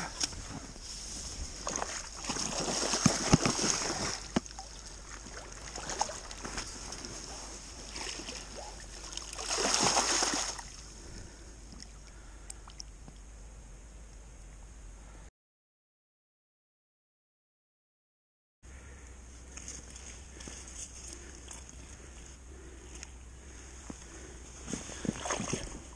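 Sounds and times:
water splashing: 0:01.6 - 0:12.9, 0:25.0 - 0:25.9.

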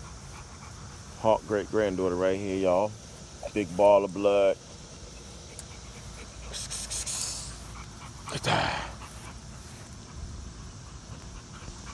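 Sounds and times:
dog panting: 0:00.0 - 0:11.9.

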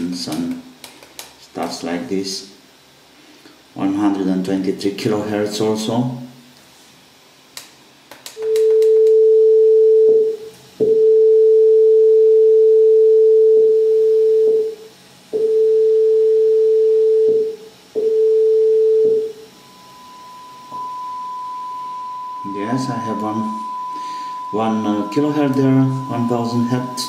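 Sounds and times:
sine test tone: 0:08.4 - 0:27.0
quieter higher test tone: 0:18.0 - 0:27.0.

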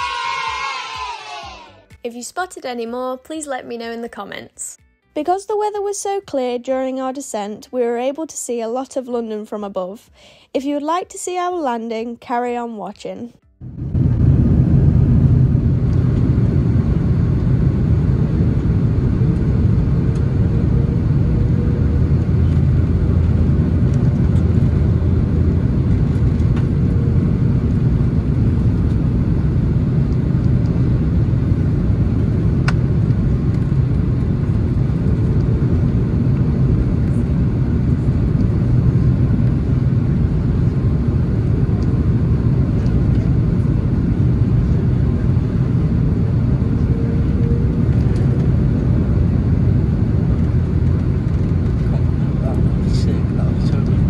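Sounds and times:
airliner cabin engine rumble: 0:13.6 - 0:54.0.

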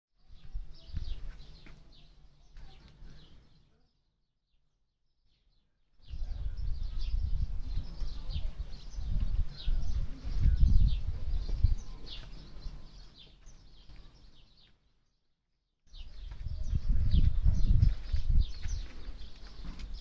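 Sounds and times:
small birds chirping: 0:00.2 - 0:20.0
wind rumble on microphone: 0:06.0 - 0:12.9, 0:16.0 - 0:20.0.

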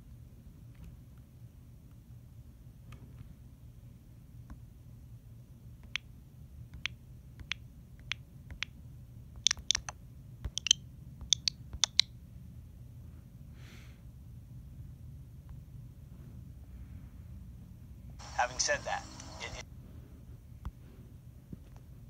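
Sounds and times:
low steady hum: 0:00.0 - 0:22.0
sharp irregular clicks: 0:05.8 - 0:06.1, 0:06.7 - 0:08.8, 0:09.4 - 0:12.1.

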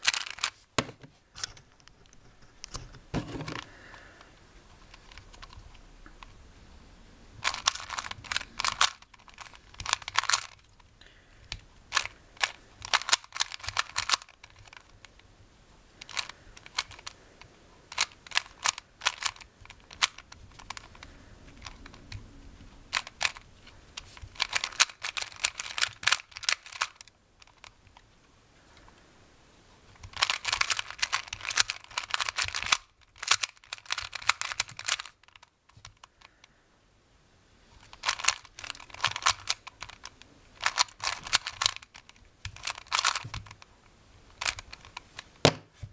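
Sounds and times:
puzzle cube clicking: 0:00.0 - 0:01.0, 0:07.4 - 0:15.2, 0:16.0 - 0:22.3, 0:22.9 - 0:28.0, 0:29.9 - 0:36.4, 0:37.8 - 0:43.7, 0:44.3 - 0:45.7.

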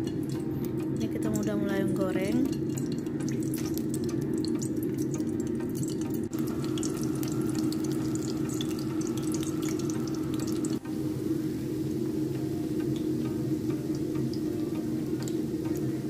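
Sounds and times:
tofu sizzling in hot oil: 0:02.8 - 0:14.5.

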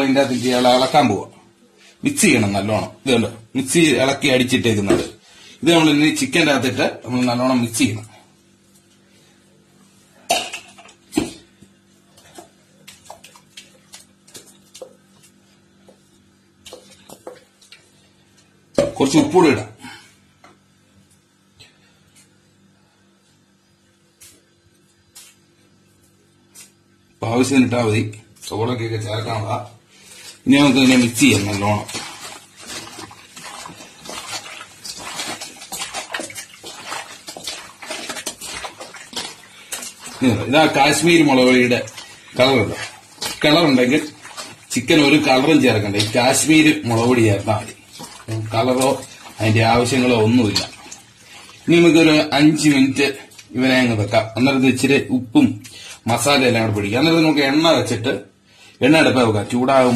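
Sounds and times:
wet squelching of kneaded meat: 0:11.2 - 0:18.7, 0:29.8 - 0:54.2.

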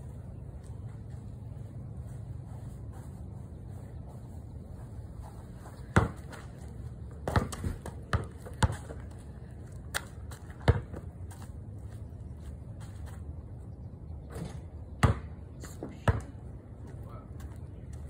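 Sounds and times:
basketball bouncing on concrete: 0:05.8 - 0:06.6, 0:07.2 - 0:09.2, 0:09.9 - 0:11.4, 0:15.0 - 0:15.4, 0:16.0 - 0:16.4.

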